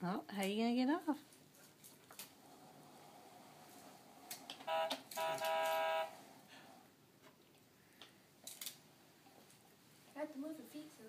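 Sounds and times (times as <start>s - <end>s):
toy steering wheel horn beeping: 4.7s - 6.1s.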